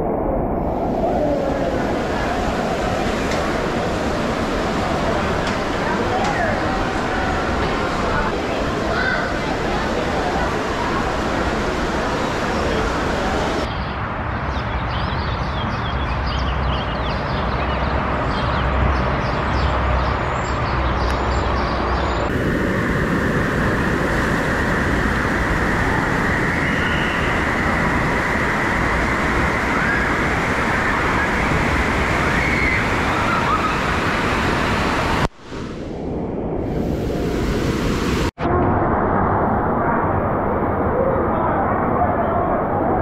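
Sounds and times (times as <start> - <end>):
water rushing and splashing: 0.6 - 13.7, 22.3 - 38.4.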